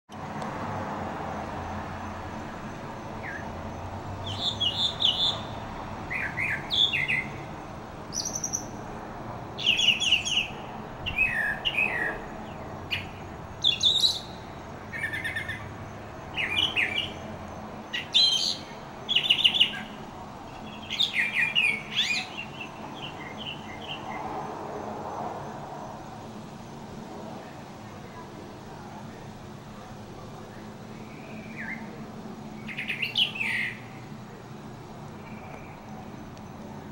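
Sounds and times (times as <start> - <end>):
mockingbird singing: 4.2 - 7.4, 8.1 - 8.8, 9.6 - 15.6, 16.3 - 17.2, 17.9 - 24.1, 32.6 - 33.9.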